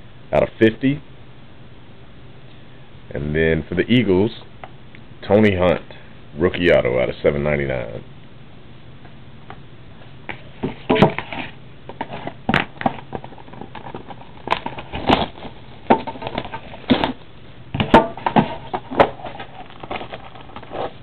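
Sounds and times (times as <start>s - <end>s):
plastic shrink wrap crinkling: 18.2s - 21.0s.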